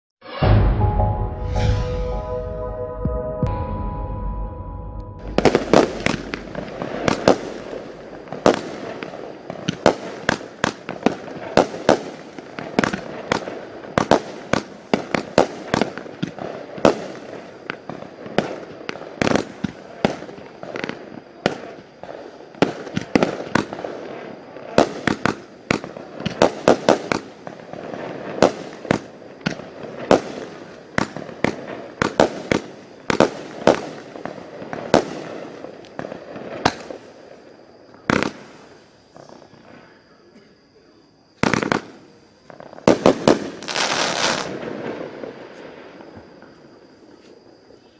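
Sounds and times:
short musical jingle: 0.3 - 7.2
fireworks sharp bangs: 5.2 - 37.2, 38.0 - 39.3, 41.4 - 45.9.

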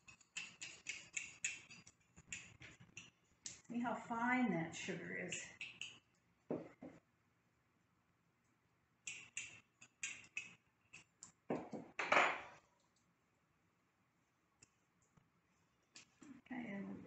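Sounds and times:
metal spoon clicking on glass jar: 0.0 - 3.1, 5.3 - 6.0
spoon scraping: 0.0 - 3.7, 5.2 - 6.2, 9.1 - 11.4.

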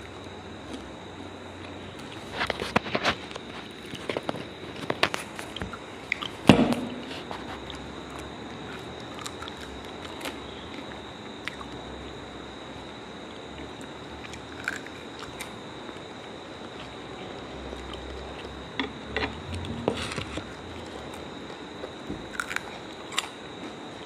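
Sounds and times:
person chewing: 1.6 - 11.8, 13.6 - 17.0, 19.2 - 23.4
loud thump: 6.5 - 7.0.

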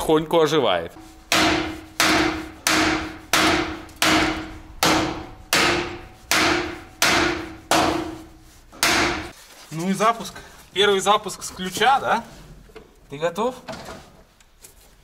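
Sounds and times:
hammer blows ringing: 1.0 - 9.3.

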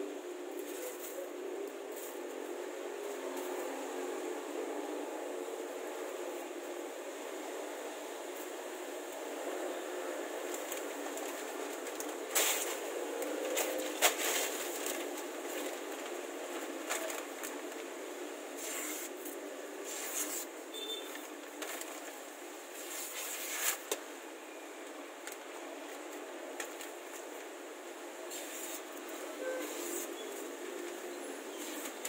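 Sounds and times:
steady hiss: 0.0 - 32.0
newspaper rustling: 10.4 - 17.9
paper tearing: 18.6 - 19.2, 19.8 - 20.5, 22.8 - 23.9.

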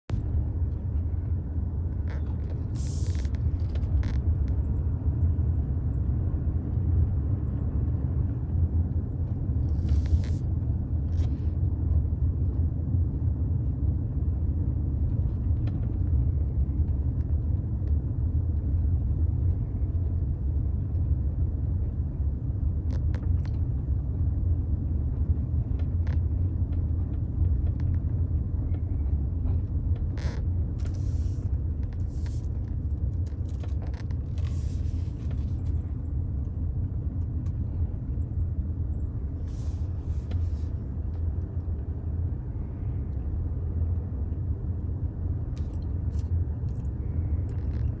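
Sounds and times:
engine and tyres rumbling: 0.0 - 48.0
short clicks and hisses: 2.7 - 3.4.

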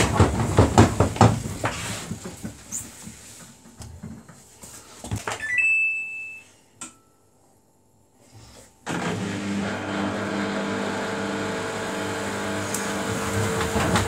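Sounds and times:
long beep: 5.4 - 6.6.

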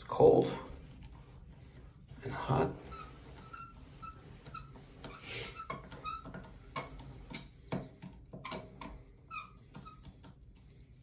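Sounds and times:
short high squeaks: 2.7 - 7.3, 8.4 - 10.3.

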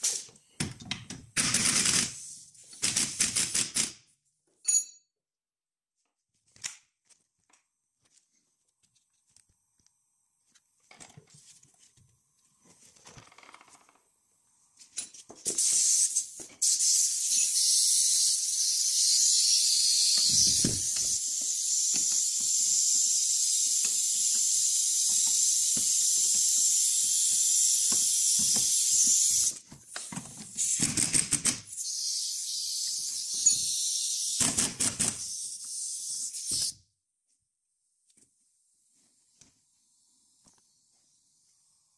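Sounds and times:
compressed air hissing: 15.5 - 29.5.

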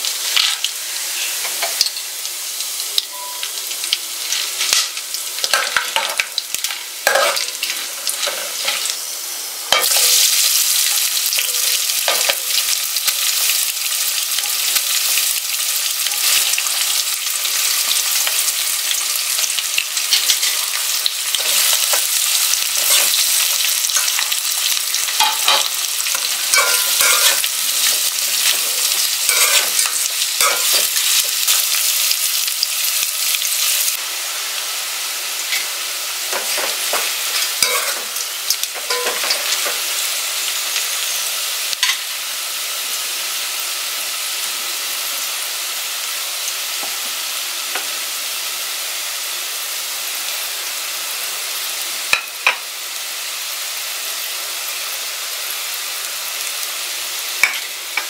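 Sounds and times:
onions sizzling in hot oil: 0.0 - 58.0
metal spatula scraping pot: 7.0 - 8.9, 25.2 - 31.0, 36.4 - 38.1.

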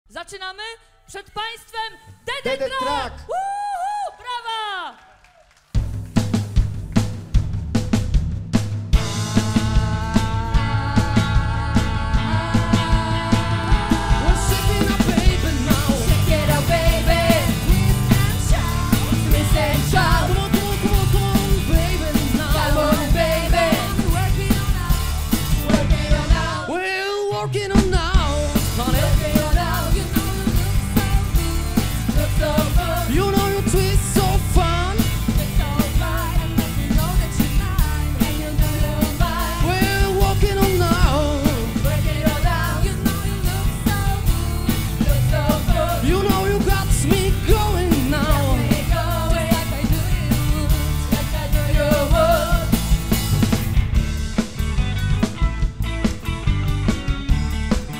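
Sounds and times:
live rock band playing: 5.8 - 57.9
person singing: 9.4 - 52.8.

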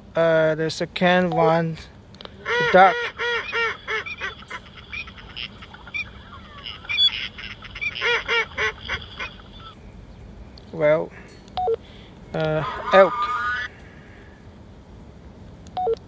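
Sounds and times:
duck quacks through small speaker: 2.4 - 4.2.

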